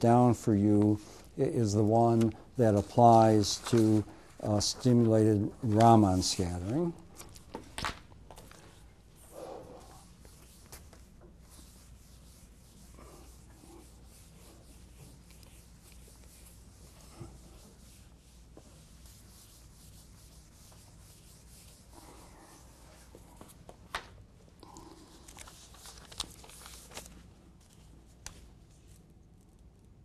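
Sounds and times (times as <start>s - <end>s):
eraser rubbing on whiteboard: 9.2s - 23.2s.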